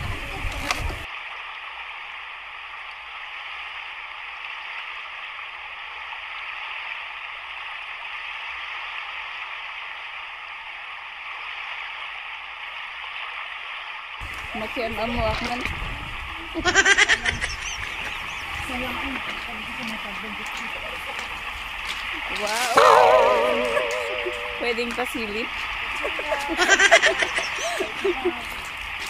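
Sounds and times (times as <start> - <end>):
surf washing on pebbly shore: 14.2 - 29.0.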